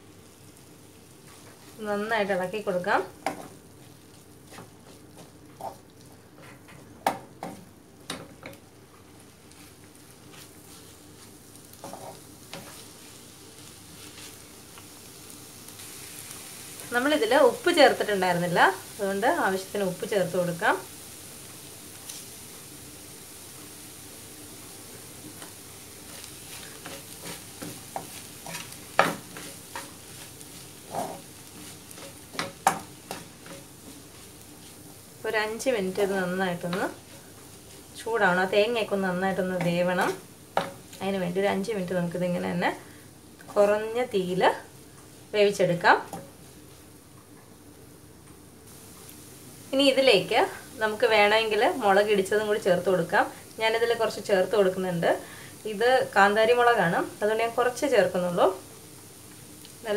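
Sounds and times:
low sizzle: 0.0 - 59.9
wooden spatula scraping a pan: 3.2 - 6.8, 9.1 - 14.5, 25.2 - 41.0.

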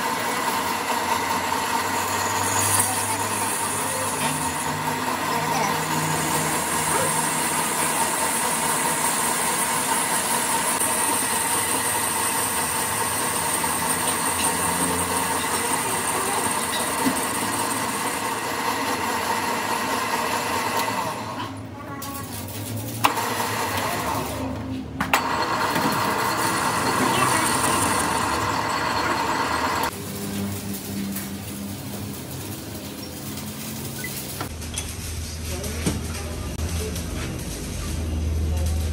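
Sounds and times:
lathe machine hum: 0.0 - 21.4, 23.1 - 24.3, 25.1 - 30.2
high cutting whine: 25.2 - 30.8.

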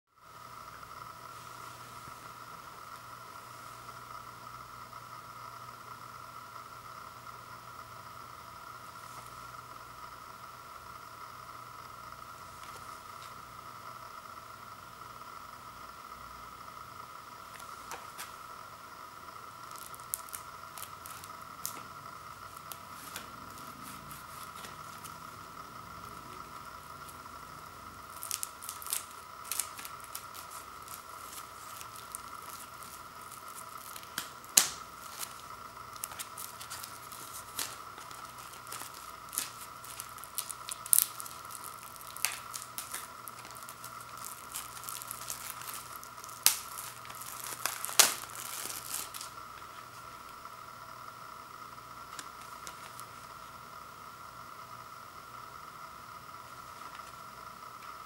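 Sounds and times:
plastic wrap crinkling and tearing: 19.4 - 25.4, 26.0 - 50.2, 52.1 - 53.5
sharp snaps of plastic wrap: 19.5 - 25.2, 28.0 - 50.4, 52.1 - 53.2.

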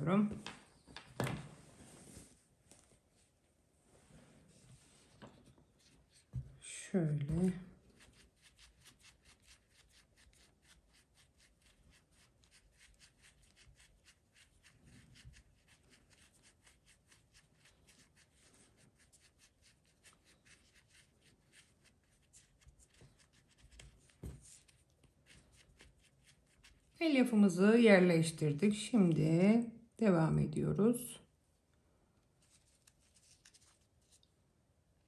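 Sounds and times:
hands rustling stuffing: 32.4 - 34.2.

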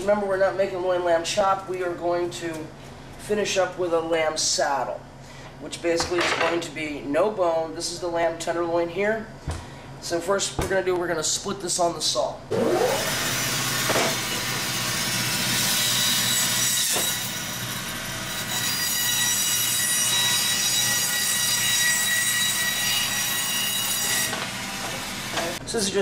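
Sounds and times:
band saw cutting meat: 12.5 - 25.6.

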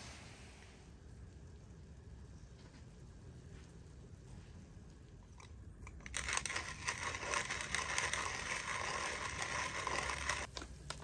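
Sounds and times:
spice mill grinding: 5.4 - 11.0.

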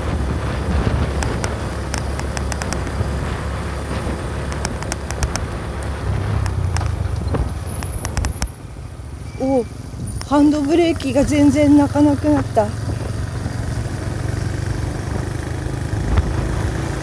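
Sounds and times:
low wind rumble: 0.0 - 17.0
motorcycle engine running: 0.0 - 17.0
sharp ticks: 1.2 - 3.1, 4.4 - 8.6.

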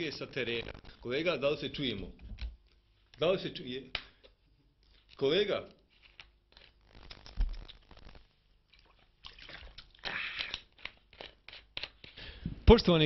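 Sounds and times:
plastic bottle crinkling: 5.9 - 12.1.

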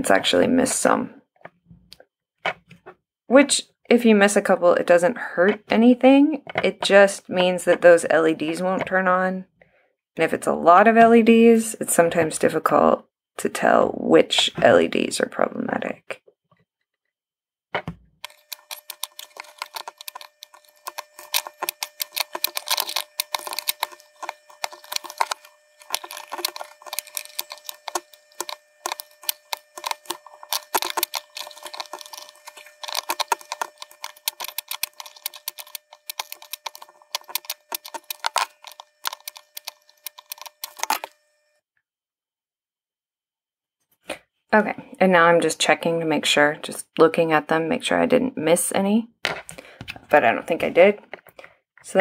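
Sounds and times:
rapid soldering clicks: 18.2 - 41.1
steady multi-tone hum: 18.2 - 41.6.

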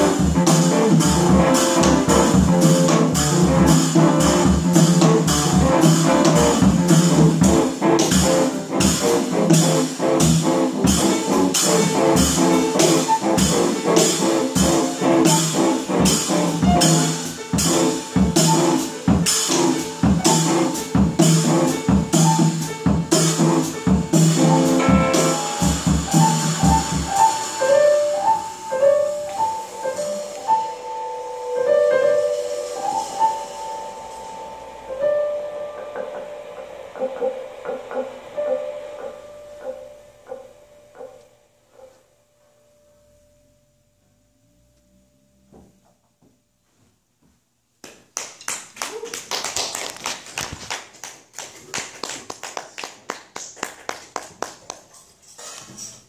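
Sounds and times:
drum hit: 0.0 - 30.3
jazz trio playing quietly: 0.0 - 43.0
audience clapping: 47.8 - 55.2.

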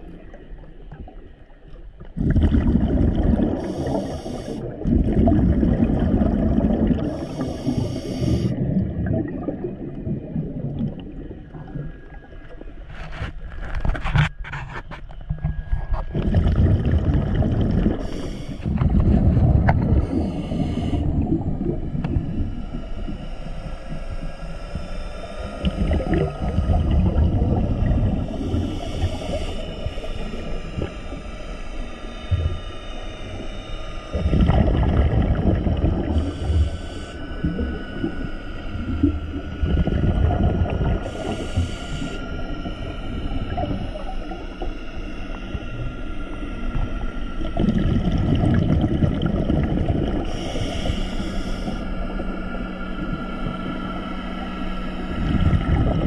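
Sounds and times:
exhaled bubbles: 0.0 - 13.1, 15.7 - 23.2, 25.5 - 31.3, 34.1 - 51.0, 55.1 - 56.0
regulator inhalation hiss: 3.5 - 4.7, 7.0 - 8.6, 17.9 - 18.8, 19.8 - 21.2, 28.2 - 34.1, 36.0 - 37.4, 40.8 - 45.0, 50.2 - 52.3.

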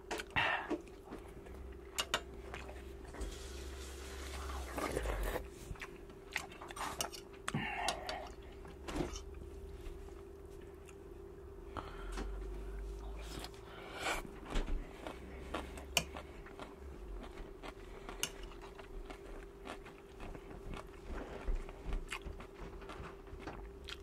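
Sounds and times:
faint steady hum: 0.0 - 24.0
chewing food: 4.3 - 8.6, 14.4 - 24.0.

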